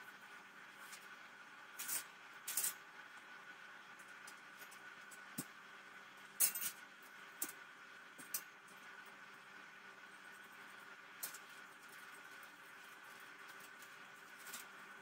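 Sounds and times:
wire shelving scraping and clinking: 1.8s - 2.8s.

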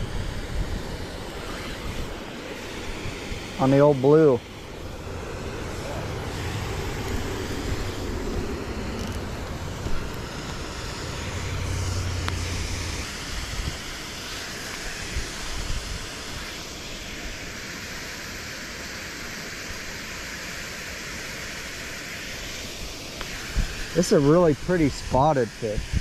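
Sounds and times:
river water rushing: 0.5s - 15.5s.

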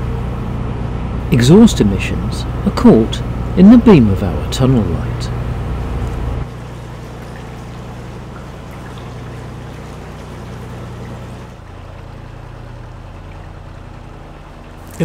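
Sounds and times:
boat engine throbbing: 0.0s - 15.0s
water washing under boat: 6.0s - 15.0s.

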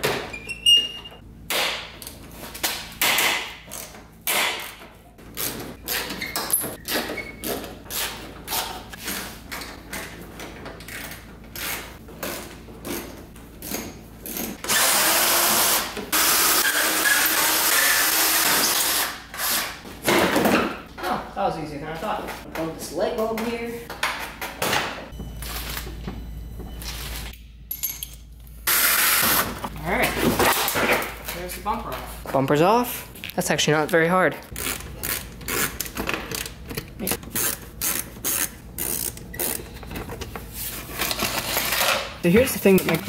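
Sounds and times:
cordless drill running: 14.6s - 19.1s.

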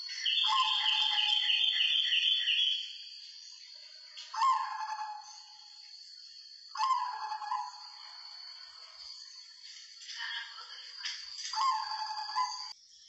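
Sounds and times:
dove cooing: 6.8s - 7.8s.

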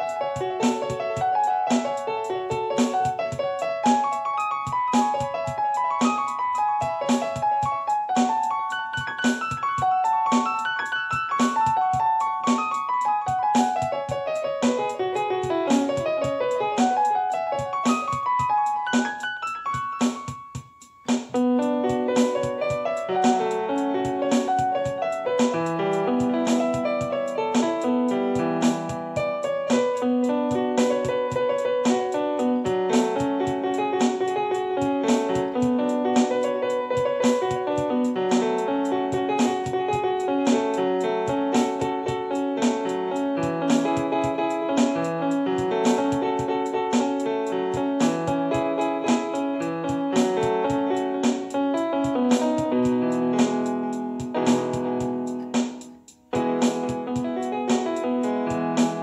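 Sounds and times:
piano music over steady beat: 0.0s - 59.0s.

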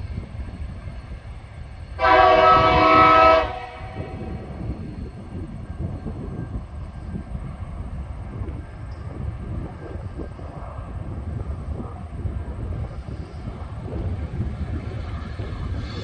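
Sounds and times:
locomotive horn blast: 2.0s - 4.4s.

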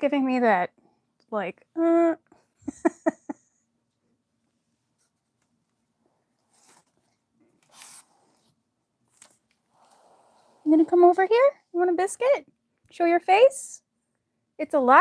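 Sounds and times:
woman laughing: 2.6s - 3.5s.

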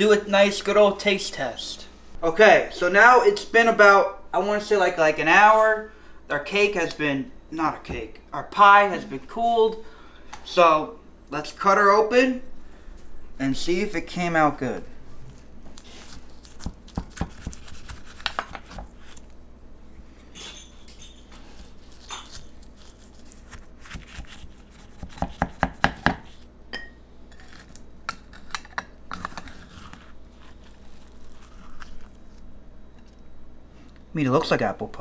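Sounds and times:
pie crust crackling: 15.3s - 20.2s, 21.2s - 25.5s, 27.4s - 32.5s.

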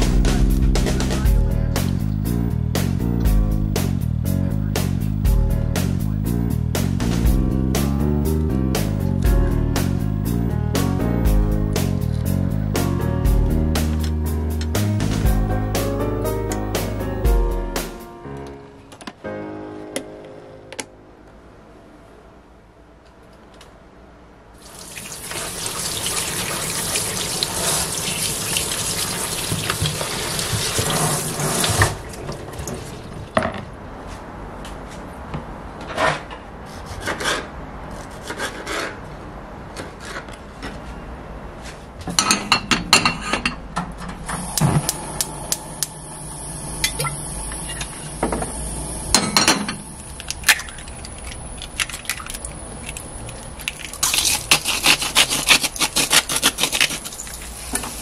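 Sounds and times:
oil sizzling in frying pan: 24.6s - 31.8s
tap water running into sink: 24.6s - 33.1s
eggs cracking: 50.1s - 55.8s.

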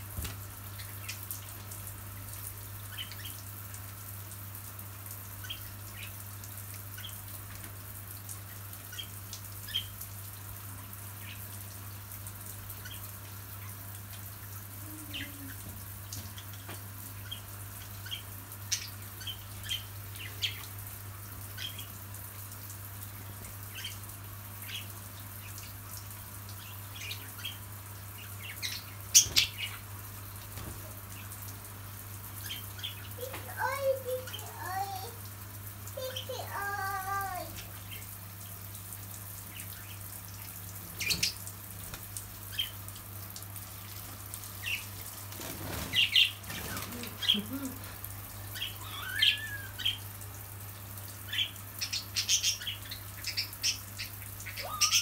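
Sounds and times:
shower water spraying: 0.0s - 55.0s
budgerigars chirping: 51.3s - 55.0s.

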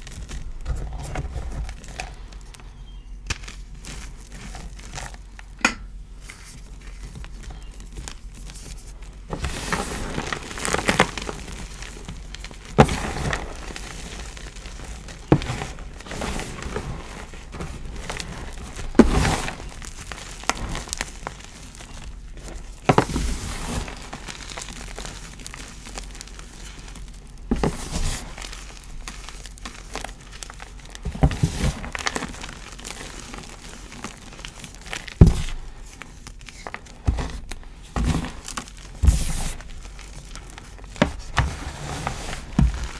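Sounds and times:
chalk crunching by hand: 6.2s - 42.9s
chalk chunks breaking: 9.6s - 41.4s.

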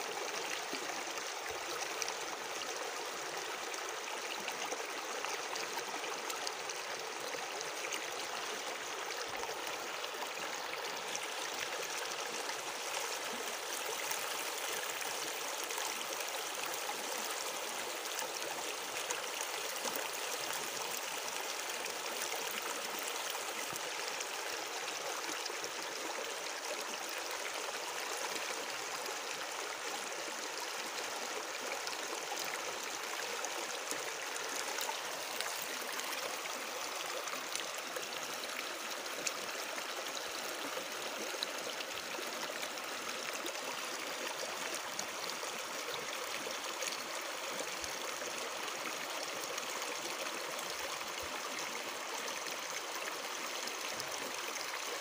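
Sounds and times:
running water: 0.0s - 55.0s
water splashes and trickles: 0.0s - 55.0s.

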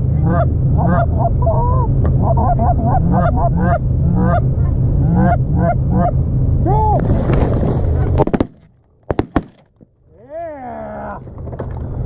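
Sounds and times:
low rumble: 0.0s - 12.0s
goose calls honking and clucking: 0.1s - 6.2s.

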